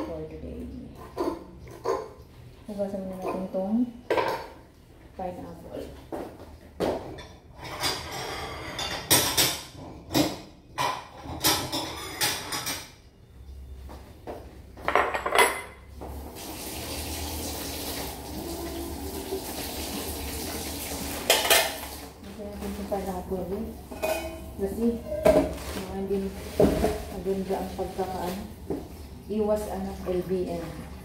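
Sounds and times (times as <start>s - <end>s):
dishes and utensils clattering: 0.9s - 2.5s, 3.1s - 4.7s, 6.2s - 13.1s, 14.8s - 16.0s, 20.8s - 29.0s.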